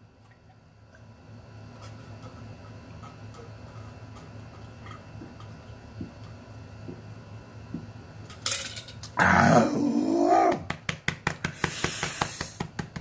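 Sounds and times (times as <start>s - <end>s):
man groaning: 9.2s - 10.6s.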